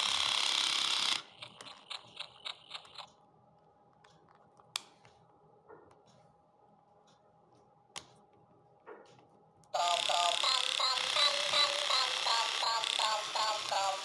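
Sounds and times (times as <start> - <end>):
toy motor gears clicking: 0.0 - 3.1, 9.8 - 14.0
toy electronic sound: 9.8 - 14.0.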